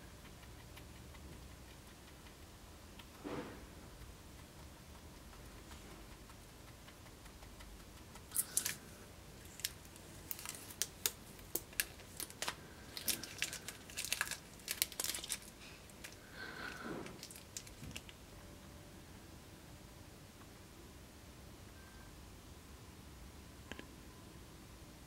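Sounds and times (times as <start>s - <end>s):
plastic tape crackling: 8.3s - 8.8s, 9.4s - 16.2s, 17.1s - 18.2s.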